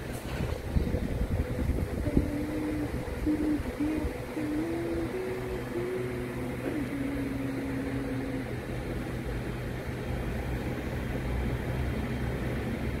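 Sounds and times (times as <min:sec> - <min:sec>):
steady low rumble: 0:00.0 - 0:13.0
person humming: 0:01.8 - 0:08.6.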